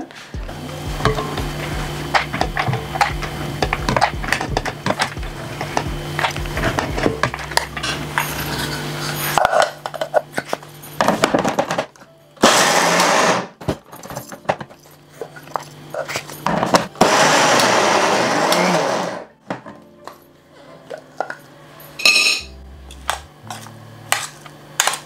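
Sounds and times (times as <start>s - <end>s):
electric mixer grinder running: 0.4s - 11.2s, 12.4s - 13.6s, 15.4s - 19.3s
metal spoon scraping and clinking: 2.1s - 11.0s, 21.2s - 25.0s.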